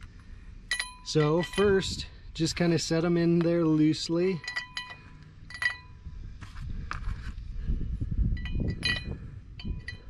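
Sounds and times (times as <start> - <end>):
metal wheel studs clinking: 0.7 - 6.0, 8.4 - 10.0.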